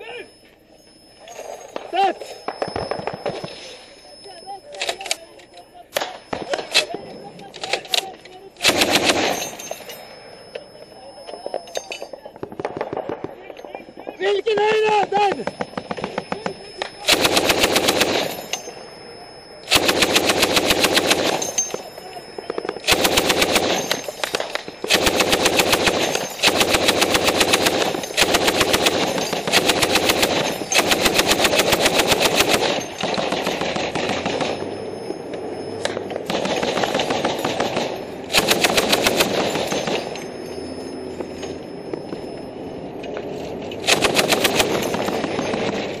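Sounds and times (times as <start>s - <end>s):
machine-gun fire: 8.6s - 9.6s, 15.4s - 18.6s, 19.7s - 21.8s, 22.5s - 34.7s, 36.2s - 40.2s, 43.8s - 46.0s.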